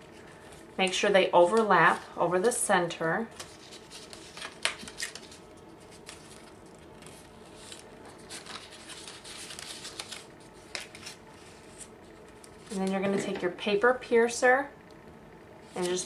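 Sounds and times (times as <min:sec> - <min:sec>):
paper rustling and crinkling: 0:03.3 - 0:13.0.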